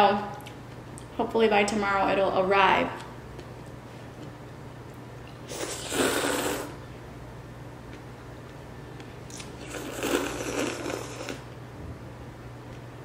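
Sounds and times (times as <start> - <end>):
person slurping noodles: 5.5 - 6.8, 9.3 - 11.5.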